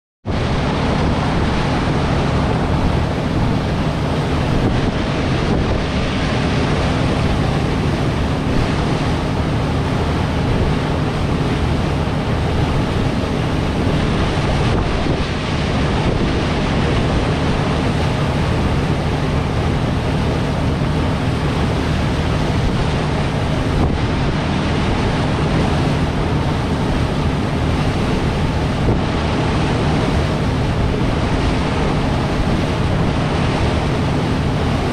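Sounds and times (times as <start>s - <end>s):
boat engine humming: 0.2s - 34.9s
water rushing along hull: 0.2s - 34.9s
wind buffeting microphone: 0.2s - 34.9s.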